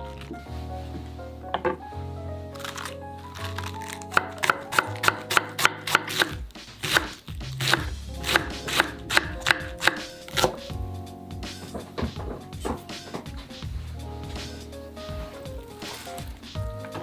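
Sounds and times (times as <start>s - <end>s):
knife shredding cabbage on board: 3.5s - 9.2s.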